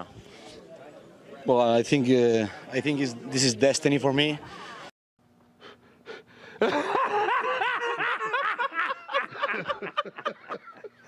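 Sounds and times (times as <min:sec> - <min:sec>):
man laughing hard: 0:06.6 - 0:11.0.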